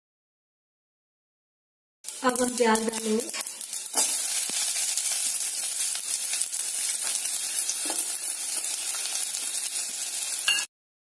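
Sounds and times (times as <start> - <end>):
onions sizzling in hot oil: 2.0 - 10.7.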